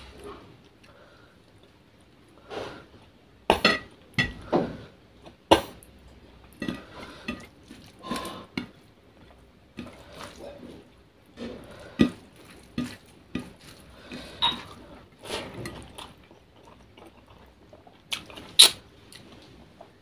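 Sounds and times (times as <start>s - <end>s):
hand mixing rice on plate: 6.6s - 16.0s.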